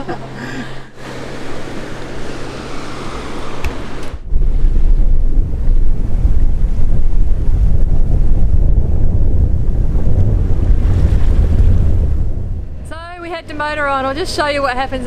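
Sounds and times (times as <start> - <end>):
steady low hum: 0.0 - 15.0
wind and water: 0.0 - 15.0
wind buffeting microphone: 0.8 - 15.0.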